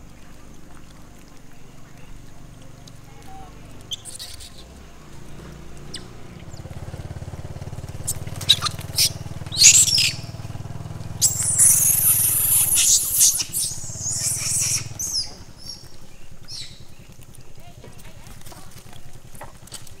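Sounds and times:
monkeys screeching: 3.9 - 4.8, 8.0 - 10.5, 11.2 - 15.9, 16.5 - 16.8.

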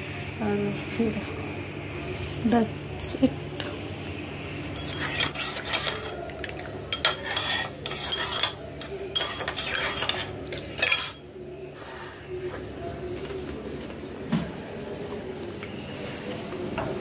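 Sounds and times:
spoon stirring in a ceramic mug: 4.7 - 11.3.

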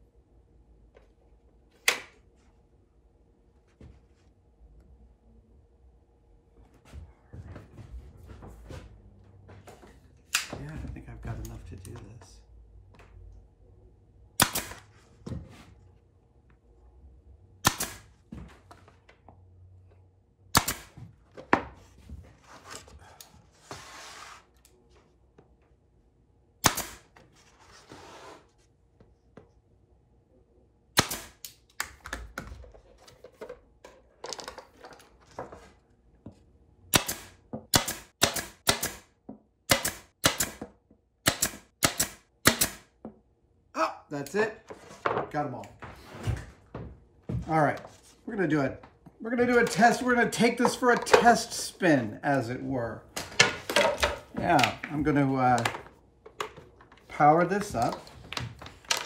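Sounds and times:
nail gun firing: 14.4 - 14.8, 17.6 - 18.1, 20.5 - 21.0, 26.6 - 27.1, 31.0 - 31.4, 36.9 - 39.1, 39.7 - 40.6, 41.2 - 42.9.

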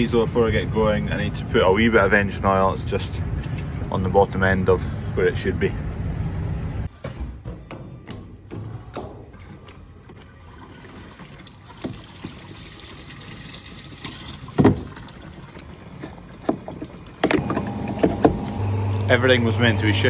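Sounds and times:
oil trickling: 9.4 - 17.2.

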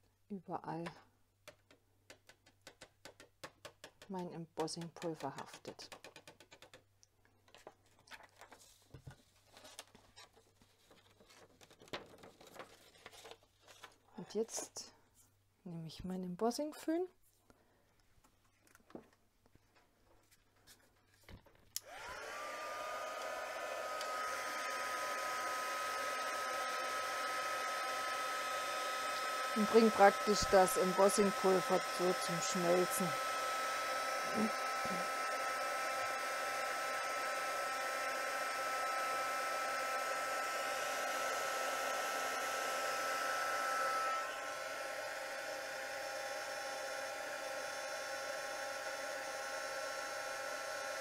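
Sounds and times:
heat gun fan whine: 21.8 - 51.0.

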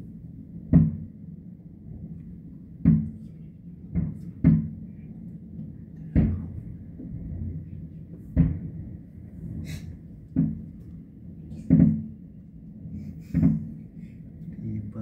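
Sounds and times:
distant fireworks booming: 6.1 - 14.1.

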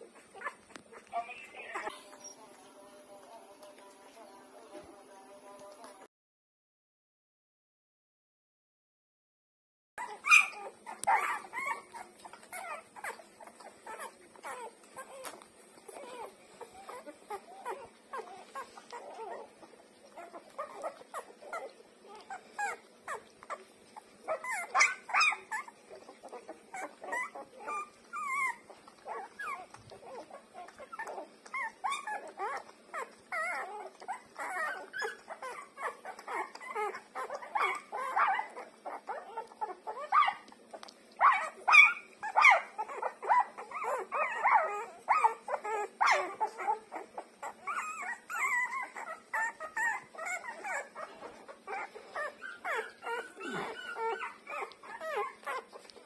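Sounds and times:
newborn puppies squeaking: 0.0 - 2.6, 10.0 - 56.0.

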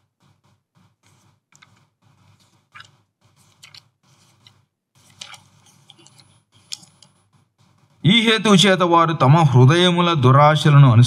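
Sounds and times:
pages rustling: 1.0 - 7.1
page turning clicks: 3.5 - 3.8, 5.1 - 6.9.

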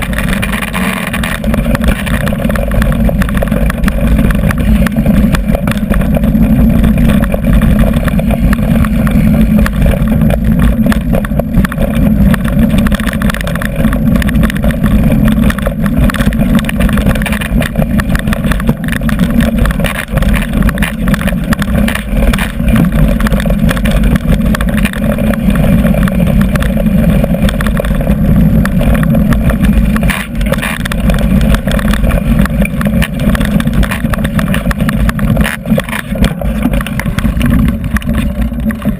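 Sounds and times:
bike knocking and rattling: 0.0 - 38.9
wind and tyre rumble: 0.0 - 38.9.

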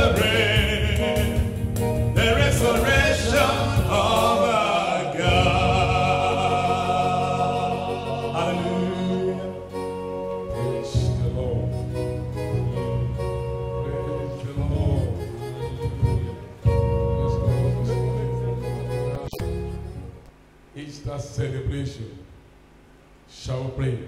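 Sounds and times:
man singing gospel song: 0.0 - 11.9, 13.6 - 15.4
instrumental backing: 0.0 - 20.7.

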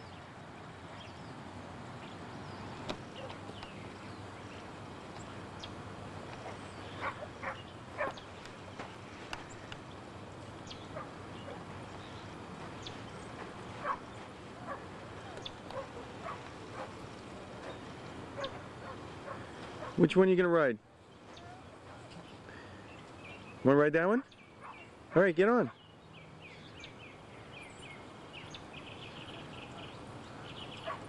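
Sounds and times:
low steady hum: 0.0 - 31.0
faint dog barks: 6.4 - 8.3, 13.8 - 17.0, 17.6 - 20.1, 24.6 - 25.8, 30.8 - 31.0.

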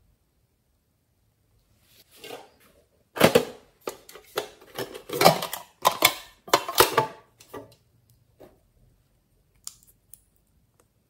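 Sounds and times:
metal tin clicking and rattling: 3.2 - 7.6.

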